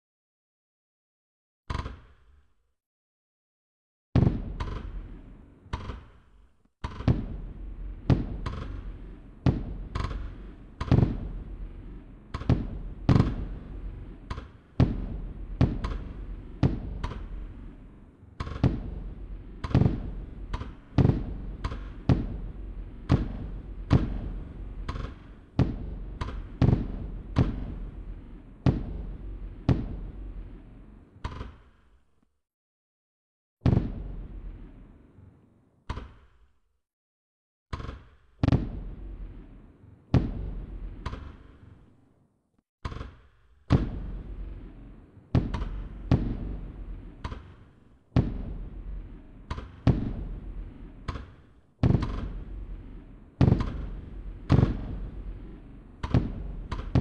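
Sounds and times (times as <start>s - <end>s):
fireworks bangs: 4.2s - 5.5s, 6.9s - 31.2s, 33.6s - 35.1s, 38.4s - 41.7s, 43.7s - 57.0s.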